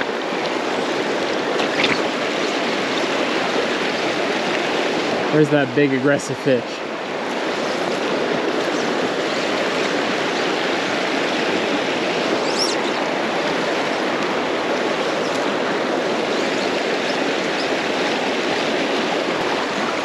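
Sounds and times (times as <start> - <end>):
river rushing over rocks: 0.0 - 20.0.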